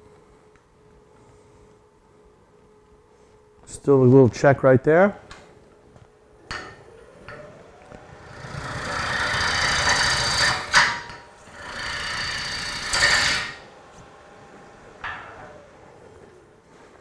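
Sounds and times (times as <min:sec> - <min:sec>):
lathe gouge cutting hiss: 0:08.1 - 0:13.8.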